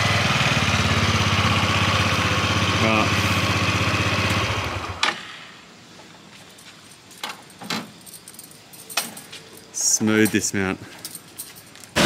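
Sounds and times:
motor scooter engine running: 0.0s - 5.0s.

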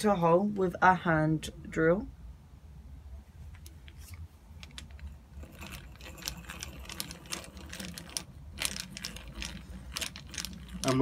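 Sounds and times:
hand drill gears whirring and clicking: 4.6s - 11.0s.

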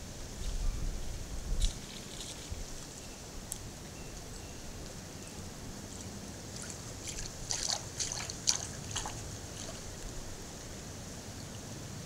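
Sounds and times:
bird steps splashing in water: 6.0s - 10.0s.

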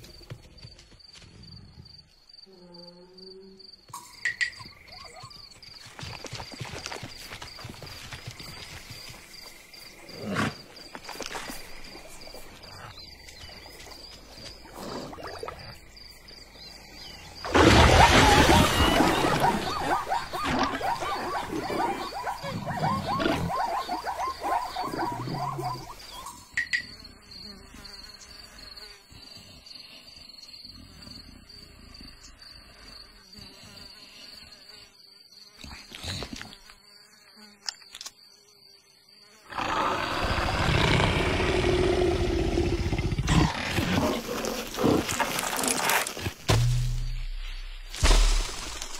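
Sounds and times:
high insect buzz: 1.0s - 5.0s, 18.7s - 48.9s
animal sound effects: 17.4s - 26.4s.

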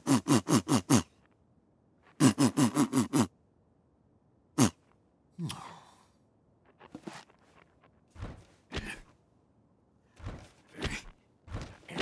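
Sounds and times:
cartoon footsteps: 6.6s - 9.2s, 10.1s - 12.0s.

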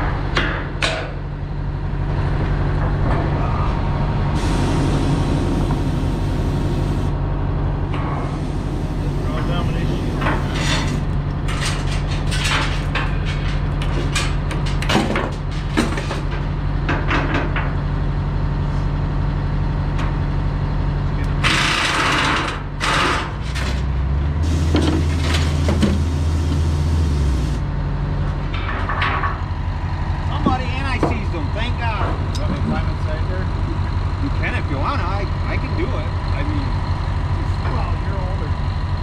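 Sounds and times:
diesel engine idling: 0.0s - 39.0s
metal clanks and taps: 0.3s - 1.2s
released air hissing: 4.4s - 7.1s.

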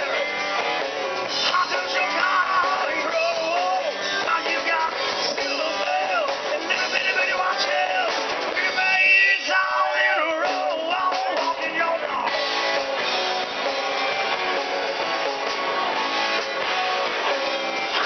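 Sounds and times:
live rock band playing: 0.0s - 18.0s
man singing: 1.3s - 12.4s.

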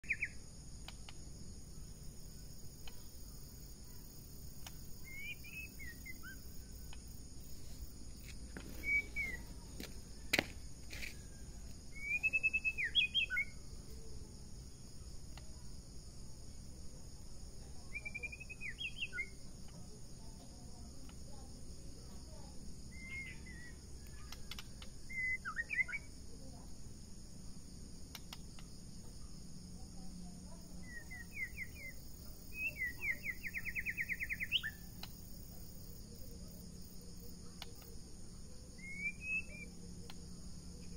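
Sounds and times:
songbird whistling phrases: 0.0s - 0.4s, 5.0s - 6.5s, 8.8s - 9.6s, 11.9s - 13.6s, 17.9s - 19.4s, 22.9s - 26.1s, 30.8s - 34.9s, 38.8s - 39.7s
insect buzz: 0.0s - 40.9s
sharp click: 24.3s - 24.9s, 28.1s - 28.7s.

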